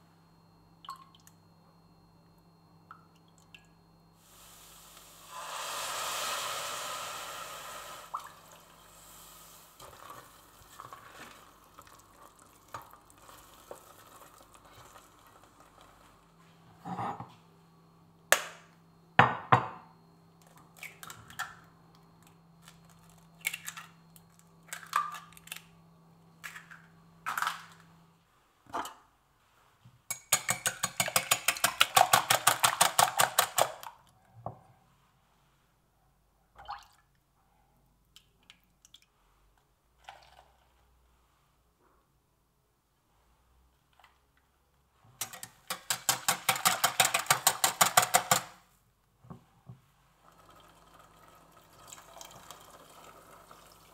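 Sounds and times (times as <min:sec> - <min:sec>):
eggs beaten in a glass bowl: 0:30.1 - 0:33.8, 0:45.2 - 0:48.5.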